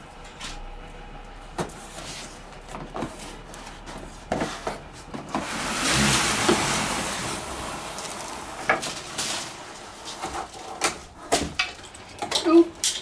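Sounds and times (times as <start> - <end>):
wood scraping out of cardboard: 1.8 - 11.4.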